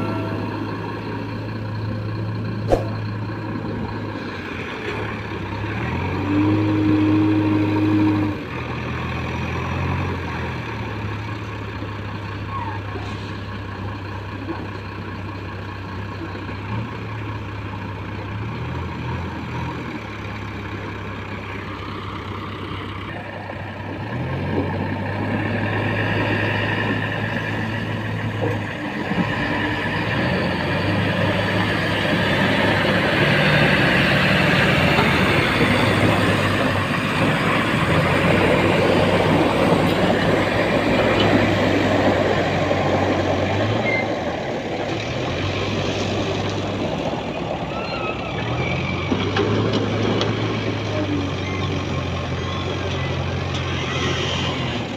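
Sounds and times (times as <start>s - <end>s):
heavy diesel engines running: 0.0s - 54.9s
sharp knock: 2.7s - 3.0s.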